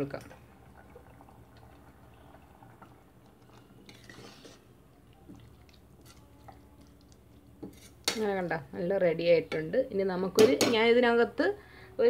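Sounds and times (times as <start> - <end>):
spoon scraping and clicking in pot: 7.6 - 8.2.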